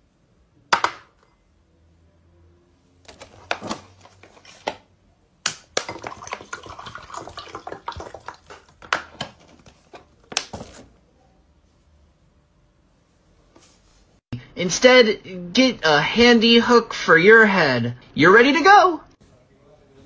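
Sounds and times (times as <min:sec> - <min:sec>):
water pouring into a glass: 0:05.9 - 0:08.7.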